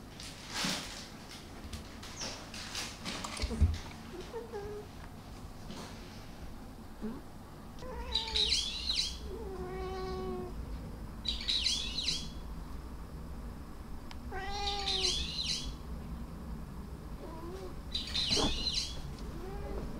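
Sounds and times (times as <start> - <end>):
cat meowing: 7.8 - 8.6, 9.3 - 10.5, 14.3 - 15.3, 19.3 - 19.9.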